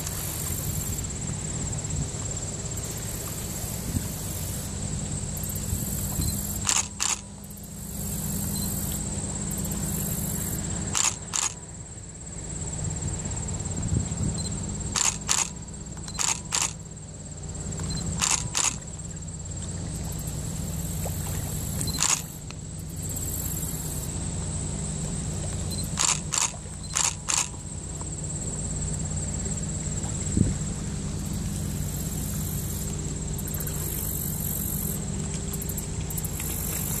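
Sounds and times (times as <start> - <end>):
ship engine drone: 0.0 - 37.0
short sharp clicks: 6.6 - 7.2, 11.0 - 11.6, 15.0 - 16.8, 25.9 - 27.6.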